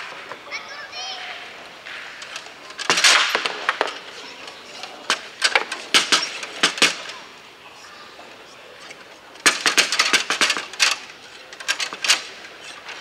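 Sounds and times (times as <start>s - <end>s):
foosball ball knocks and clacks: 1.9s - 4.1s, 4.8s - 7.1s, 9.4s - 11.0s.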